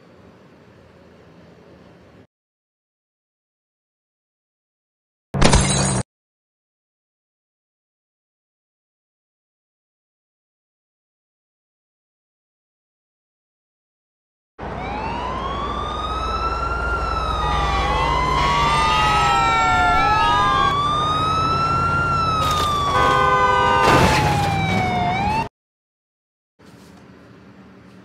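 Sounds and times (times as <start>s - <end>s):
sirens wailing: 14.6s - 25.5s
horn blast: 17.3s - 20.7s, 22.8s - 24.3s.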